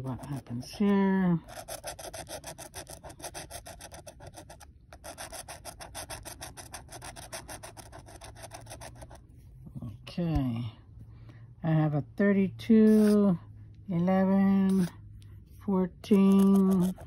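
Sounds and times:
scratching lottery ticket: 0:00.0 - 0:09.2, 0:12.9 - 0:13.2, 0:14.6 - 0:15.0, 0:16.1 - 0:17.0.

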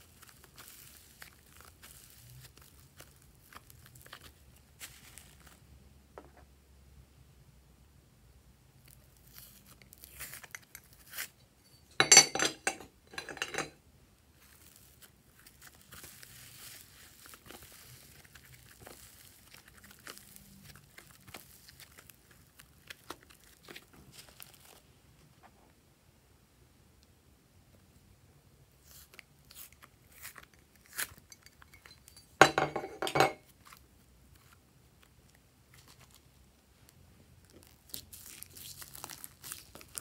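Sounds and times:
paper crinkling and crackling: 0:00.0 - 0:05.7, 0:08.8 - 0:11.4, 0:14.4 - 0:24.9, 0:33.5 - 0:40.0
clay rustling with ticks: 0:00.0 - 0:06.4, 0:08.8 - 0:25.6, 0:28.8 - 0:40.0.

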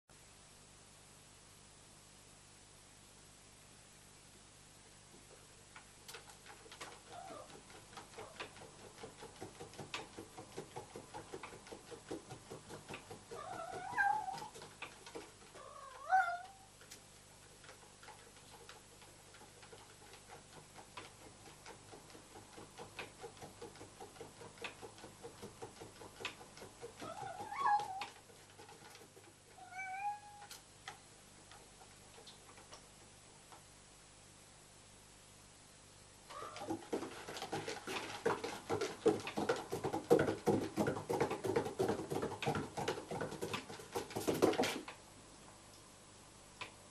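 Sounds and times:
cat meowing: 0:13.4 - 0:14.5, 0:15.6 - 0:16.7, 0:27.1 - 0:28.1, 0:29.6 - 0:30.5, 0:36.3 - 0:36.7.

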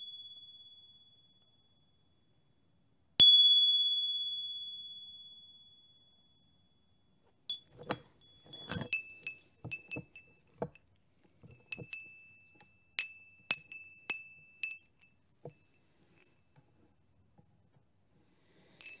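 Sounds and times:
small metal bells ringing: 0:07.5 - 0:10.8, 0:11.5 - 0:16.4, 0:18.8 - 0:19.0.

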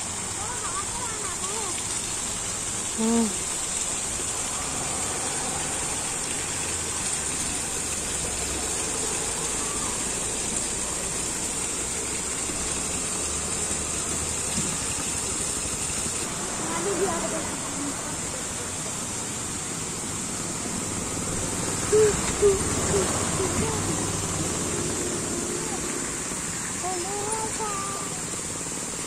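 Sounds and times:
fountain water rushing: 0:00.0 - 0:29.0
person speaking: 0:03.0 - 0:03.4, 0:21.8 - 0:24.4, 0:26.8 - 0:28.3.

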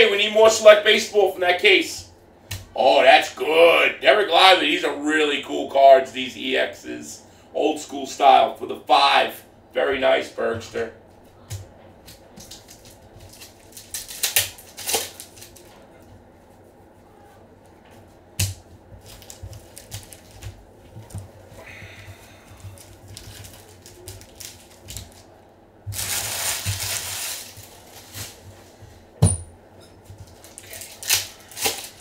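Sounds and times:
pack wrapper crinkling: 0:12.1 - 0:15.7, 0:19.0 - 0:20.6, 0:22.6 - 0:25.3, 0:25.9 - 0:28.6, 0:30.2 - 0:32.0.

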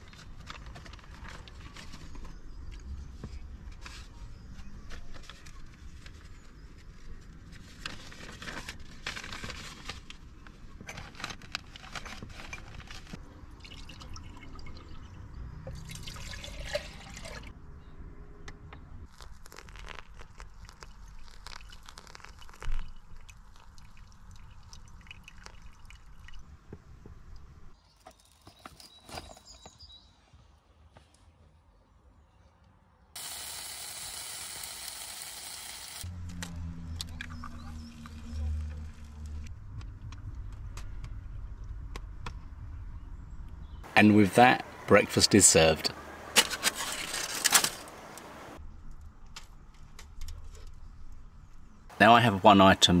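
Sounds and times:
water pouring into kettle: 0:15.9 - 0:17.5.

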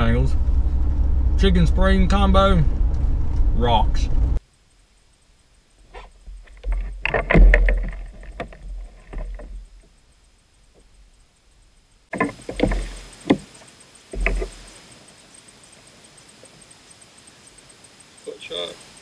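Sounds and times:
low rumble: 0:00.0 - 0:04.4
fishing tackle knocks and clicks: 0:06.3 - 0:09.8, 0:14.1 - 0:14.6.

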